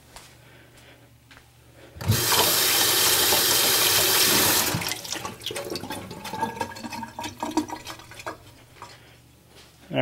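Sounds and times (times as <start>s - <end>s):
faucet running into metal sink: 2.0s - 8.6s
water splashing and dripping: 2.2s - 8.9s.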